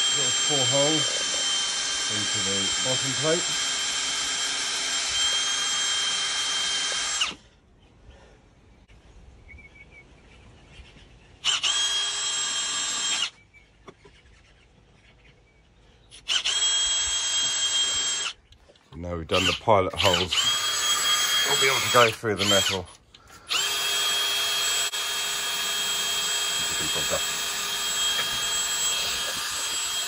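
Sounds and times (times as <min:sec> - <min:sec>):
cordless drill whining: 0:00.0 - 0:07.5, 0:11.4 - 0:13.4, 0:16.2 - 0:18.4, 0:19.3 - 0:30.0.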